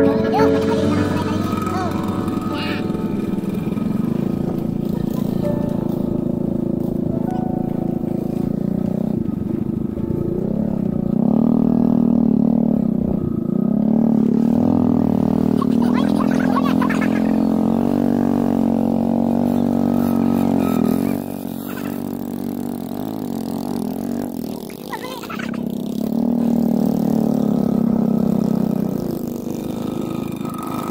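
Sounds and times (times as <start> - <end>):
motorcycle engine running: 0.0 - 30.9.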